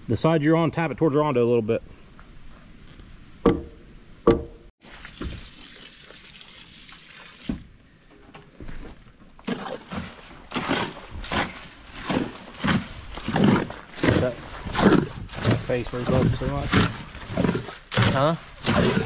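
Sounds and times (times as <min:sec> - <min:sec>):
sharp knock on a post: 0:03.4 - 0:04.6
hoe scraping wet concrete: 0:09.4 - 0:19.0.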